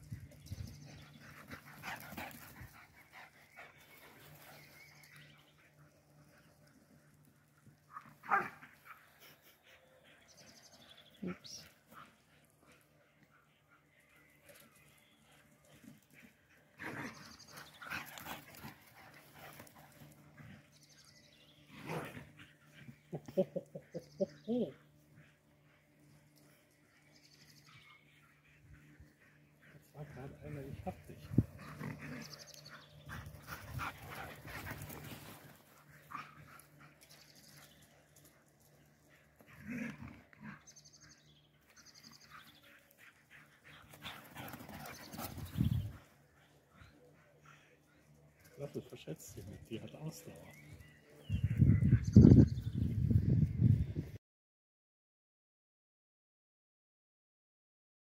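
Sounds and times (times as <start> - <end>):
dog barking: 8.3 - 8.6.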